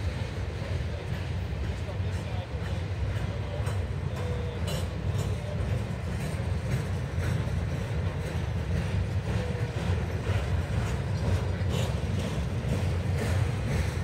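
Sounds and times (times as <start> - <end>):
faint rail clicks: 0.0 - 14.0
train wheels rumbling on track: 0.0 - 14.0.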